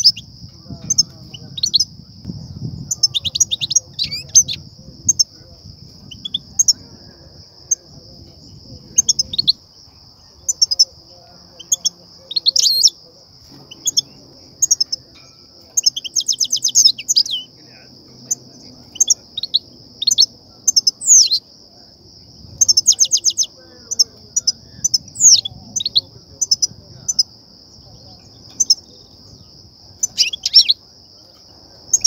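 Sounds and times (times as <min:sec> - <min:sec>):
goldfinches twittering calls: 0:00.0 - 0:02.2, 0:02.9 - 0:05.5, 0:06.1 - 0:06.9, 0:08.9 - 0:13.0, 0:13.7 - 0:21.4, 0:22.6 - 0:30.8
steady high-pitched hiss: 0:00.0 - 0:32.0.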